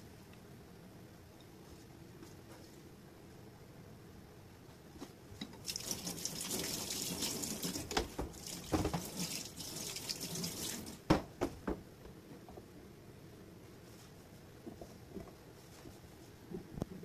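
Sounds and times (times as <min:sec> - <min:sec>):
tap water running into sink: 0:05.4 - 0:11.1
cutting board knocking on sink: 0:11.1 - 0:11.8.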